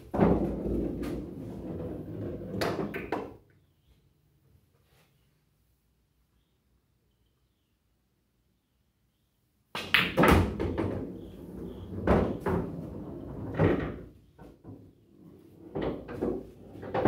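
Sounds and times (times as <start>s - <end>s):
balls rolling through ball return: 0.0s - 3.4s, 9.8s - 17.0s
pool balls knocking: 0.1s - 3.4s, 9.8s - 14.9s, 15.6s - 17.0s.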